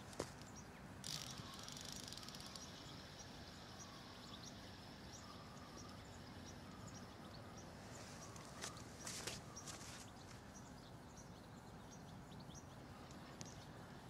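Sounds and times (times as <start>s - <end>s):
insects trilling: 1.0s - 10.1s.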